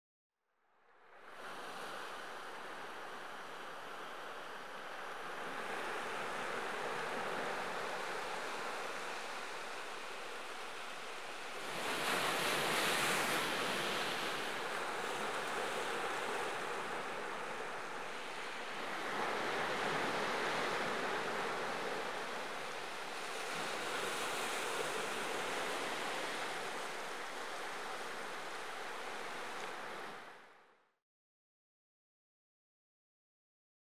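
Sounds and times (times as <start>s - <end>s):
ocean waves breaking on shore: 1.1s - 30.6s.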